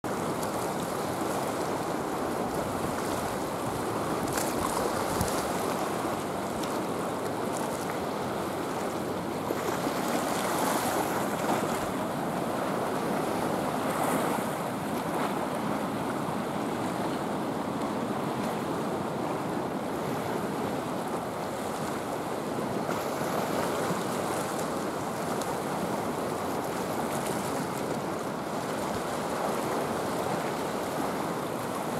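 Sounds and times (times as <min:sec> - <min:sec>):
waves washing against rocky shore: 0:00.1 - 0:17.0.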